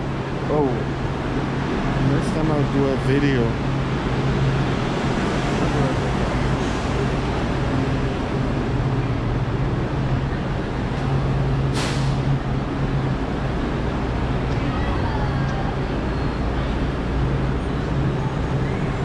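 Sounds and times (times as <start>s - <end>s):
road traffic: 0.0s - 19.0s
train humming: 0.0s - 19.0s
brief hiss: 11.8s - 12.3s.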